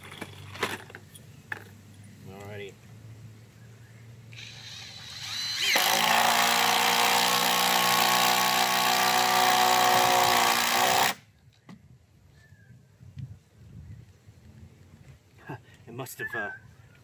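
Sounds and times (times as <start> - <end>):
impact driver hammering: 5.6 - 11.2.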